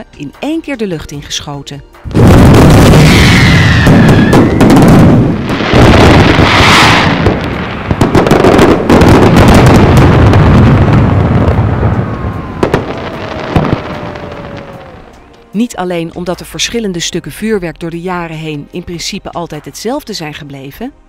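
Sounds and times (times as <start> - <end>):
fireworks booming and crackling: 2.1 - 15.3
hissing rush: 2.2 - 15.1.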